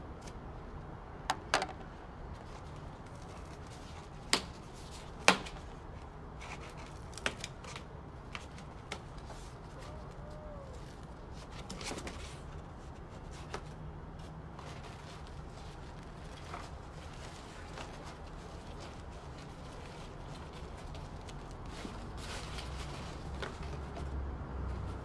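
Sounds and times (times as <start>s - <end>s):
papery rustle: 6.4s - 25.0s.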